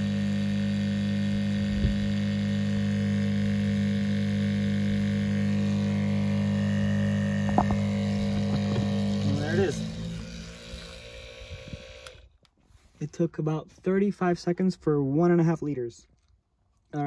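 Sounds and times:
electric water pump humming: 0.0 - 12.4.

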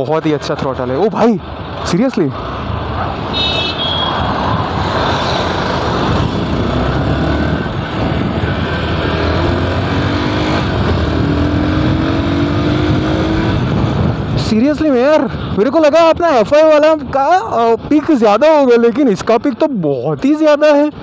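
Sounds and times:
wind rush on microphone: 1.1 - 19.4
motorcycle engine accelerating: 4.2 - 14.3.

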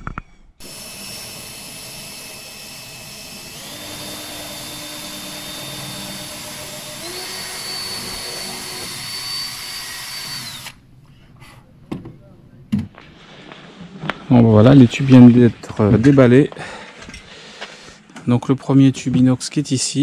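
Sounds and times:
small electric motor whining: 0.6 - 10.8.

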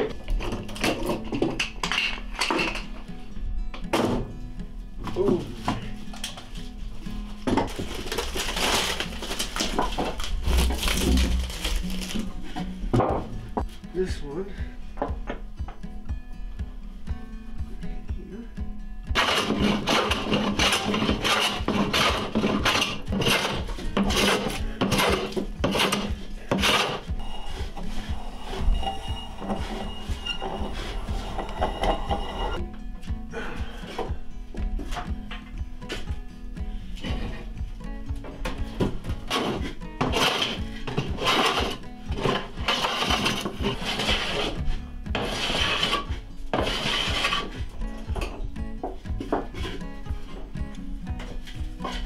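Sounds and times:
hand plane shaving wood: 19.2 - 32.6, 39.2 - 47.8.

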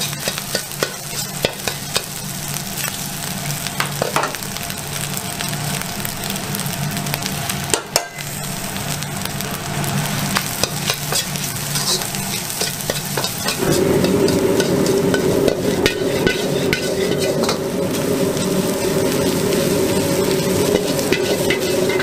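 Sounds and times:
ladle striking wok: 0.0 - 2.2, 7.7 - 8.3, 10.4 - 22.0
metal ladle scraping wok: 0.0 - 2.2, 10.6 - 22.0
rice sizzling in a wok: 0.0 - 22.0
steady low rumble: 13.5 - 22.0.

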